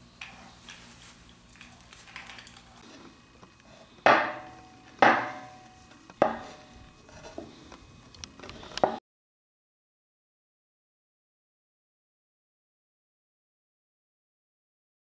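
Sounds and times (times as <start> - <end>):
metal parts clunking on wood: 4.1 - 6.7.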